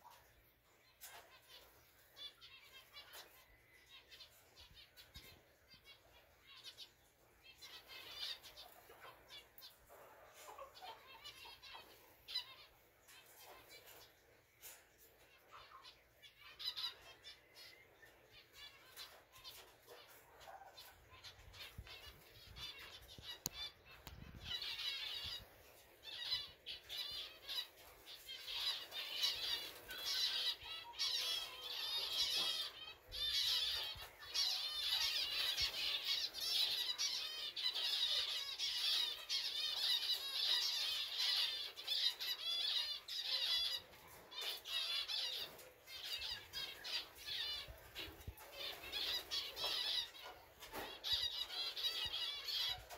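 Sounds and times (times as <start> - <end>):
finches chattering: 15.6 - 52.9.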